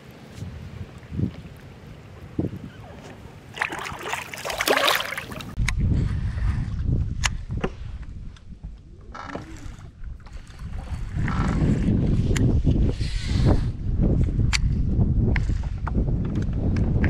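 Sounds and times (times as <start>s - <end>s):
wind rumbling on microphone: 0.0s - 17.0s
water splashing: 3.0s - 5.6s.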